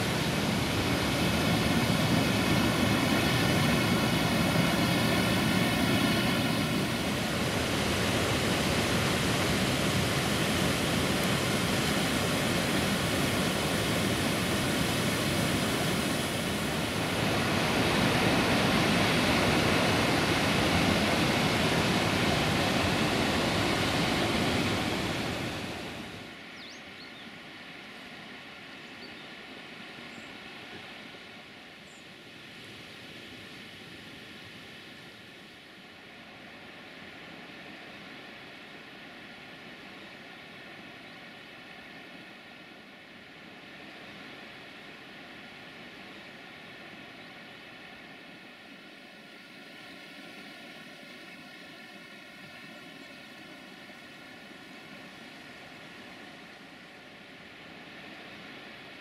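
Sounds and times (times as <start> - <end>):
waterfall rushing: 0.0 - 26.3.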